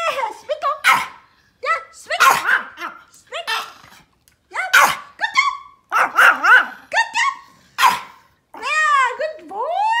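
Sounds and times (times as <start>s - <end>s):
small dog barking: 2.2s - 3.0s, 5.9s - 6.8s, 7.8s - 8.2s.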